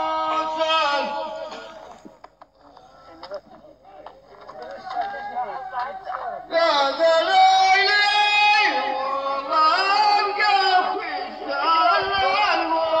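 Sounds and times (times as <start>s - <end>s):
man singing in high voice: 0.0s - 1.8s, 6.5s - 13.0s.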